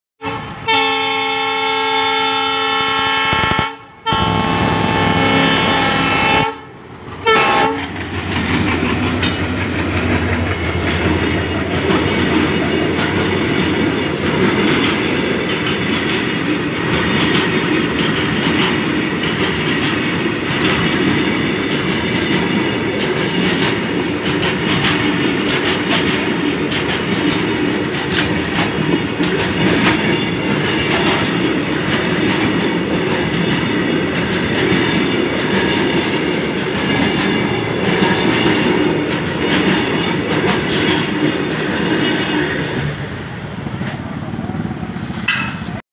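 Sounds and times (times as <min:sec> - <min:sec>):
train horn blasts: 0:00.2 - 0:07.9
train wheels clicking over rail joints: 0:03.3 - 0:43.1, 0:44.8 - 0:45.8.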